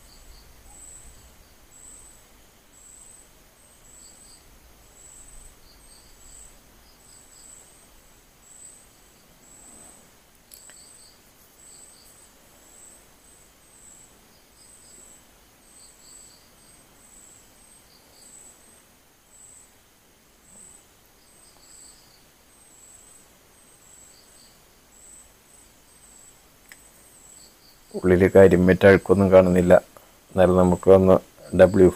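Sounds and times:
insect chirping: 0:00.0 - 0:31.9
lower insect pulses: 0:00.0 - 0:31.9.

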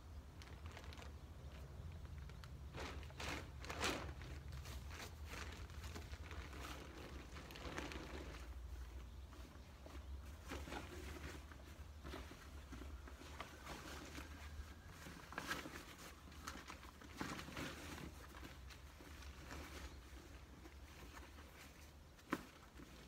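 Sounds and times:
fabric rustling and crinkling: 0:00.0 - 0:23.0.

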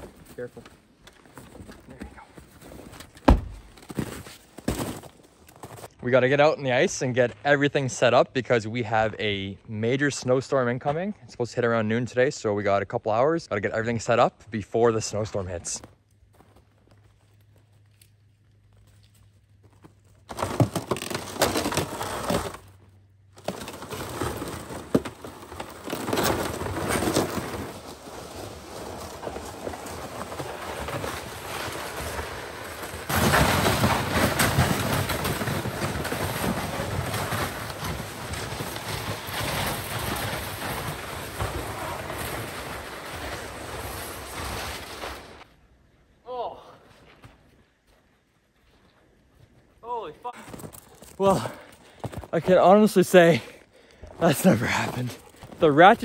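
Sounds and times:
sled scraping over snow: 0:23.4 - 0:45.5.

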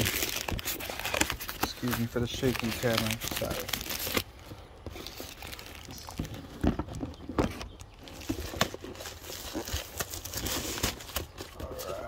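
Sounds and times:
cardboard rustling: 0:00.0 - 0:12.0.

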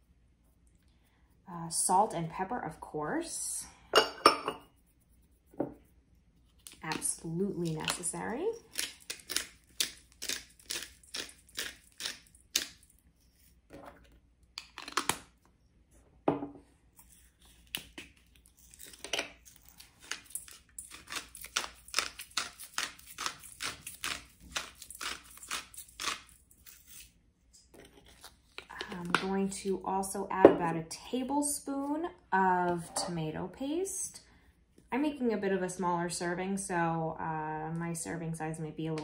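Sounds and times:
pepper grinder crunching: 0:06.6 - 0:13.0, 0:17.5 - 0:27.1.

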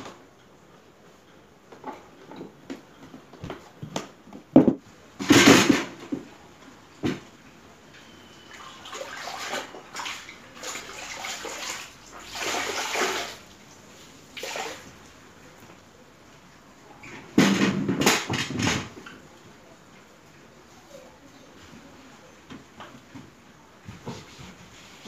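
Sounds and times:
water splashing into bucket: 0:08.5 - 0:13.5, 0:14.3 - 0:14.9
cloth swished in bucket water: 0:08.5 - 0:14.9.

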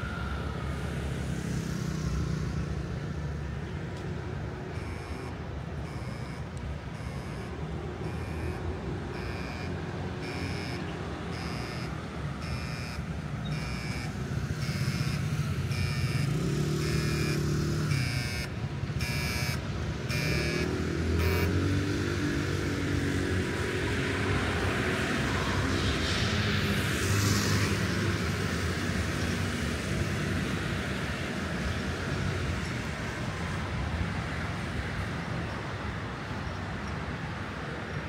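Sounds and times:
street traffic: 0:00.0 - 0:38.0
vehicle engine passing: 0:01.0 - 0:31.0
electronic beeps: 0:04.7 - 0:21.6.

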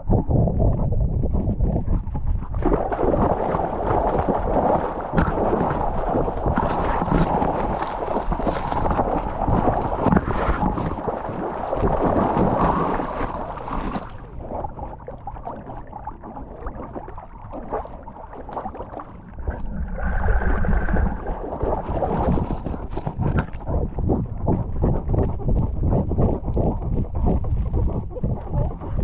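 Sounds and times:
water sloshing: 0:02.1 - 0:29.0.

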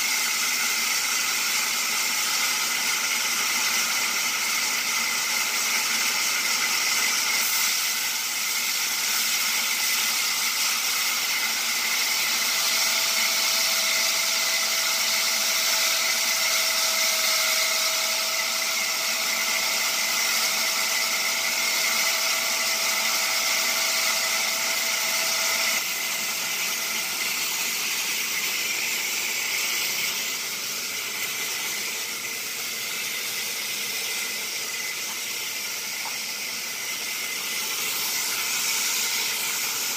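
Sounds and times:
band saw hissing: 0:00.0 - 0:39.9
faint saw whine: 0:00.0 - 0:39.9.

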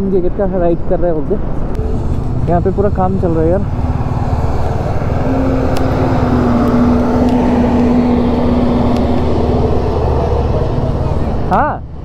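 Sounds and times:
steady hum: 0:01.6 - 0:12.0
motorcycle engine running: 0:01.8 - 0:12.0.

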